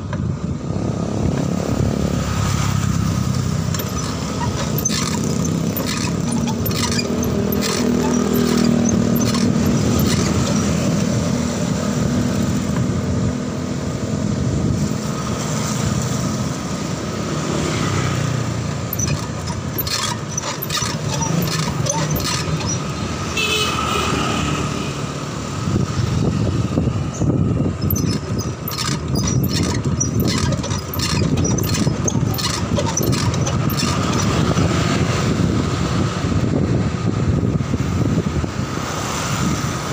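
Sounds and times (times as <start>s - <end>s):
passing motor traffic: 0.0s - 39.9s
bicycle rattling clicks: 2.8s - 10.9s, 18.6s - 23.3s, 27.8s - 34.5s.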